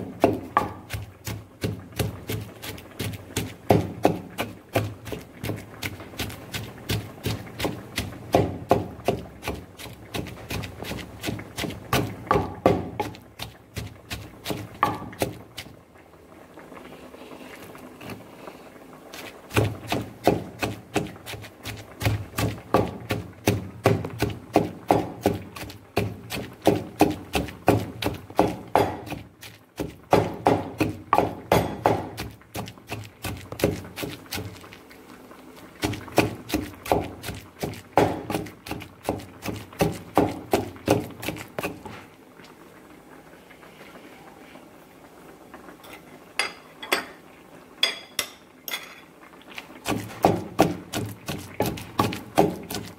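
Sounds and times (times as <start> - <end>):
pestle pounding in wooden mortar: 0.0 - 15.7, 19.1 - 34.8, 35.8 - 42.0, 49.8 - 52.9.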